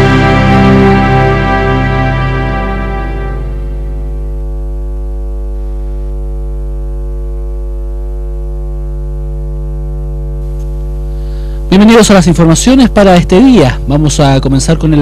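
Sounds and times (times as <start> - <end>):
held keyboard chord: 0.0 - 5.0
deep low tone: 0.0 - 9.8.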